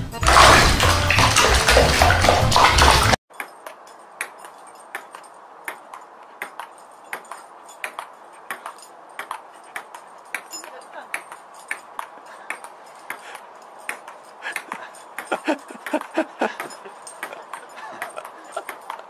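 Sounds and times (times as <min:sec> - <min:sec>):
water splashing in plastic basin: 0:00.2 - 0:03.2.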